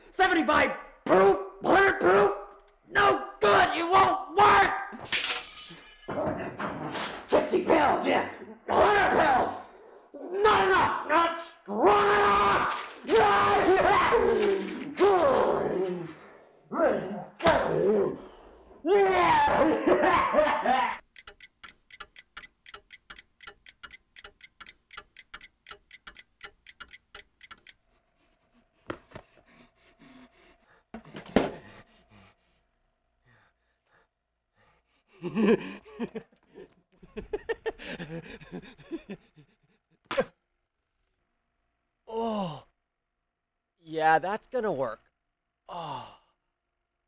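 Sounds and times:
man laughing maniacally: 0:19.1 - 0:21.0, 0:35.0 - 0:40.4.

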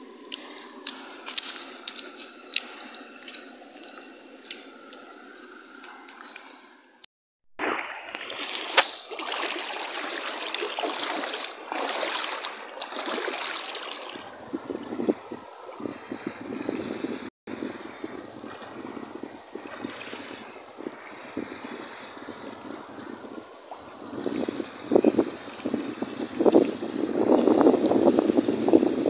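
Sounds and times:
flowing stream water: 0:00.0 - 0:07.0, 0:07.6 - 0:29.0
splashing in shallow water: 0:07.6 - 0:27.0.

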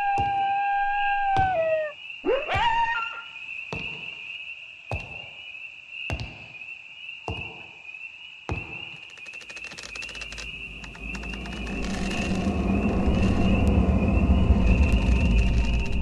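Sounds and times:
fast rattle of ticks: 0:09.0 - 0:16.0
high-pitched chirring: 0:09.1 - 0:16.0.

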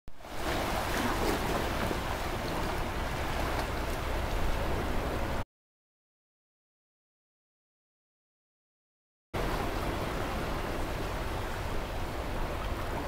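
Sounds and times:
water rushing and lapping: 0:00.1 - 0:05.4, 0:09.4 - 0:13.0
wind rumble on microphone: 0:00.2 - 0:05.4.

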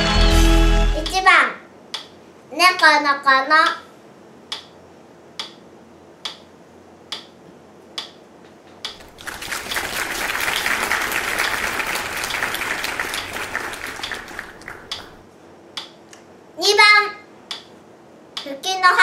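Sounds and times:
sharp ticks: 0:05.4 - 0:05.6
hand clapping: 0:08.9 - 0:15.2.

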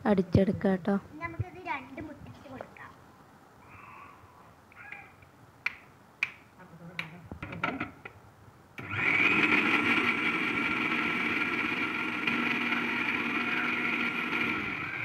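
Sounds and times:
mixer grinder motor whining: 0:08.8 - 0:15.0.

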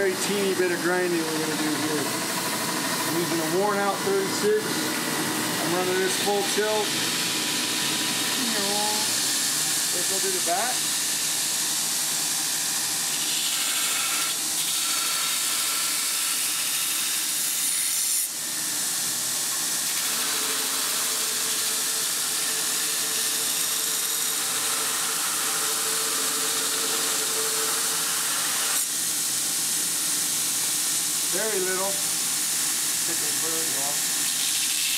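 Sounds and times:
belt grinder grinding steel blade: 0:13.1 - 0:18.3, 0:19.5 - 0:28.9, 0:33.0 - 0:34.9.

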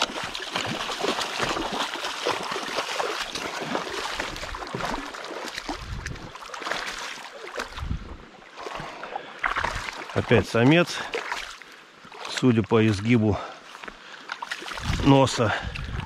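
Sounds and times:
fish splashing in water: 0:00.0 - 0:07.9, 0:08.5 - 0:10.3.

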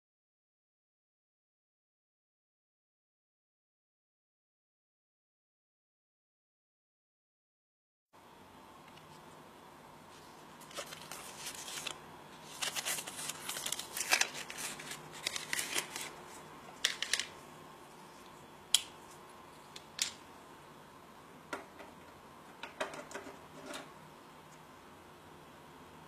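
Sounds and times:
plastic packaging crinkling: 0:10.6 - 0:17.4.

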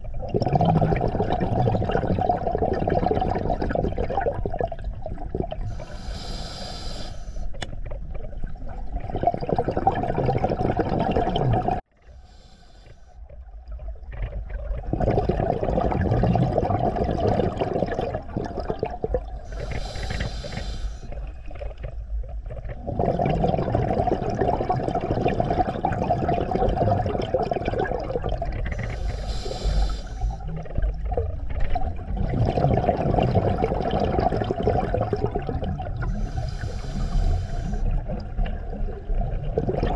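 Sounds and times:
exhaled bubbles underwater: 0:00.0 - 0:06.2, 0:07.5 - 0:11.9, 0:13.2 - 0:39.9
regulator inhale hiss: 0:05.7 - 0:07.6, 0:12.2 - 0:13.2, 0:19.4 - 0:21.2, 0:28.7 - 0:30.5, 0:36.0 - 0:38.0.

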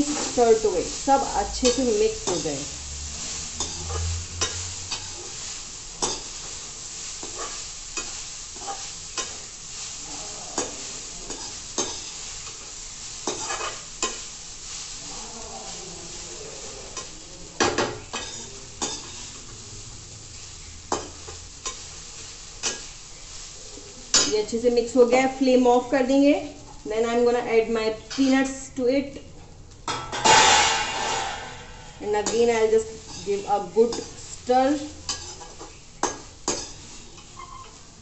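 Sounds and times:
steady sizzle: 0:00.0 - 0:38.0
metal spatula scraping pan: 0:01.2 - 0:14.3, 0:17.7 - 0:19.5, 0:30.0 - 0:37.8.

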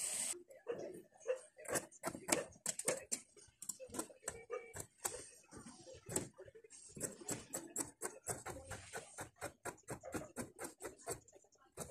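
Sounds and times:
scissors snipping fabric: 0:07.0 - 0:11.9.

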